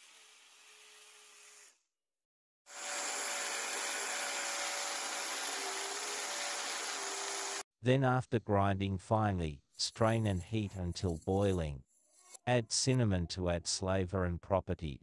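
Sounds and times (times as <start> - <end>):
electric blender motor running: 2.7 - 7.6.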